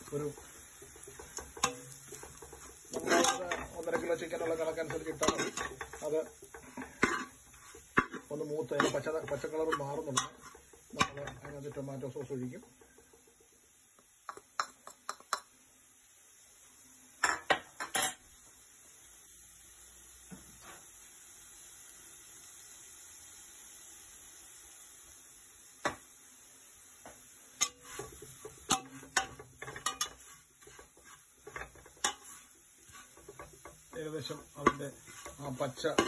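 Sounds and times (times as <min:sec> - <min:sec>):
metal spatula clinking on pot: 0:00.0 - 0:13.4, 0:14.3 - 0:15.5, 0:27.6 - 0:36.0
faint frying sizzle: 0:00.0 - 0:36.0.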